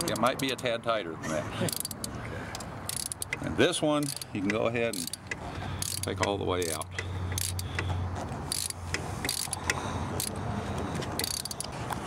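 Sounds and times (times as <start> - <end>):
ratchet wrench clicking: 0.0 - 0.6, 1.7 - 7.9, 8.5 - 10.4, 11.2 - 12.0.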